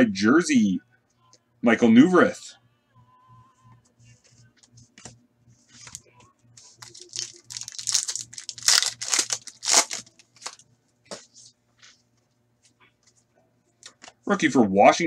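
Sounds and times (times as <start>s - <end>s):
foil pack tearing and crinkling: 6.8s - 10.6s.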